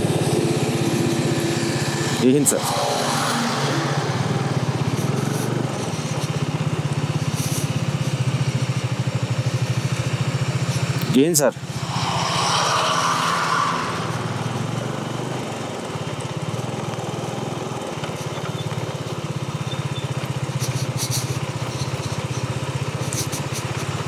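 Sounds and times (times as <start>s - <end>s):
motorcycle engine running: 3.3s - 11.0s, 14.8s - 24.0s
wind hiss: 10.5s - 16.0s.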